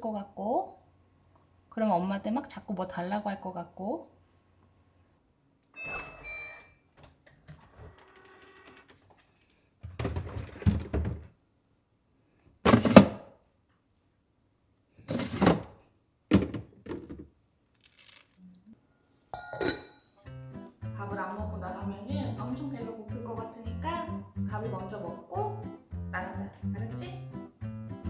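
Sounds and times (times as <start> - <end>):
cabinet door opening: 9.8 - 11.3
plastic containers clattering: 9.8 - 11.3, 12.7 - 13.2, 15.1 - 18.4
drawer being opened: 12.7 - 13.2, 15.1 - 15.8.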